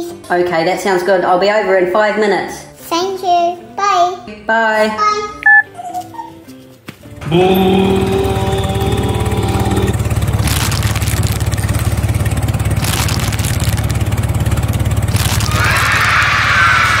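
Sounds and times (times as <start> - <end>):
toy tractor engine rumble: 7.2 - 17.0.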